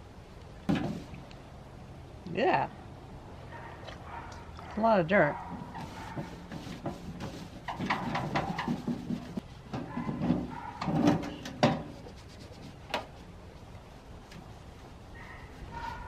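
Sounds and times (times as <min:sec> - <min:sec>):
rag scrubbing steel case: 0:05.5 - 0:13.2.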